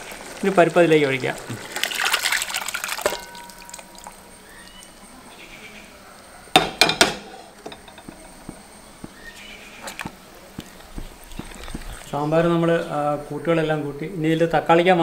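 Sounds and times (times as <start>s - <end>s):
thick dal pouring from a pot: 0.0s - 4.9s
metal cookware clanking: 3.0s - 4.2s, 6.5s - 8.2s
ringing metallic clink: 3.1s - 4.1s.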